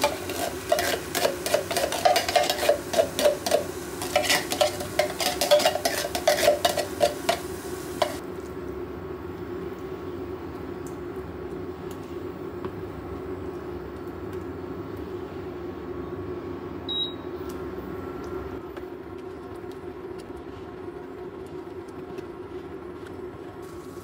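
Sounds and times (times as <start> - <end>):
spatula scraping a frying pan: 0.0 - 8.2
sauce simmering: 0.0 - 12.5, 23.3 - 24.0.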